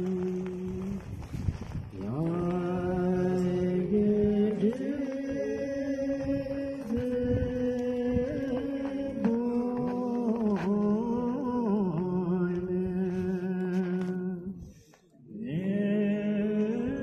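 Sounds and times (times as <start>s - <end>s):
man chanting prayer: 2.0s - 14.6s.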